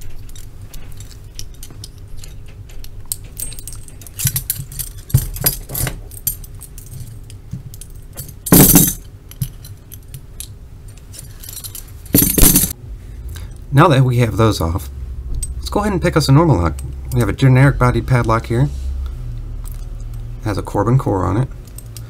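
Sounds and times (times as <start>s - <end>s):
metal rattles: 0.0s - 10.2s, 11.3s - 12.8s
handcuffs and keys clicking: 0.0s - 12.8s, 21.6s - 22.0s.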